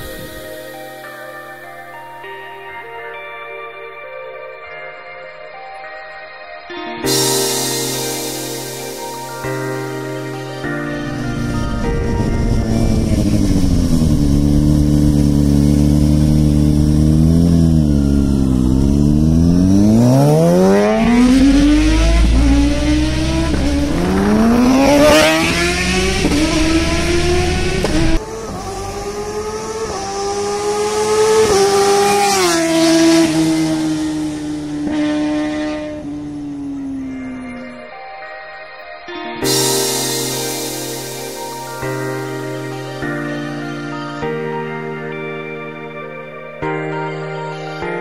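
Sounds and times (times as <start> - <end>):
motorcycle engine accelerating: 11.0 - 37.6.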